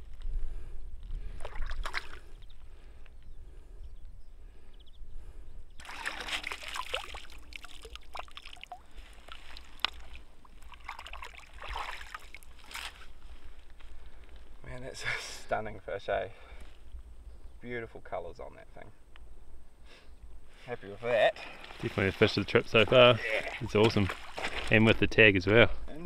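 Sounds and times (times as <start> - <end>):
water splashing and dripping: 1.4 - 2.4, 5.8 - 13.0, 22.8 - 24.9.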